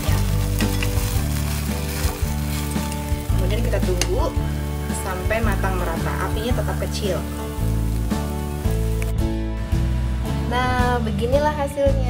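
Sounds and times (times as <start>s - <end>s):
omelette sizzling in a pan: 0.0s - 9.1s
background music with steady beat: 0.0s - 12.0s
metal spatula scraping pan: 0.2s - 3.4s.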